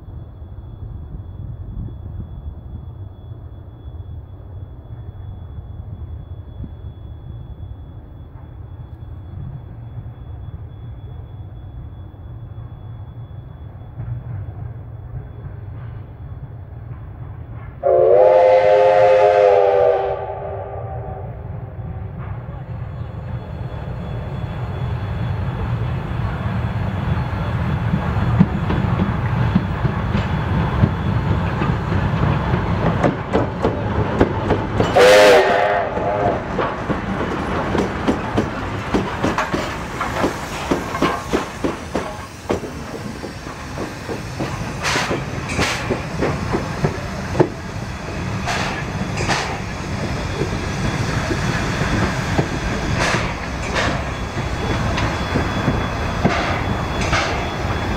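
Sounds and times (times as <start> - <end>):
steam locomotive rumble: 0.0 - 57.9
loud locomotive whistle blast: 17.8 - 22.2, 34.8 - 36.6
train wheels clattering over rail joints: 27.8 - 57.9.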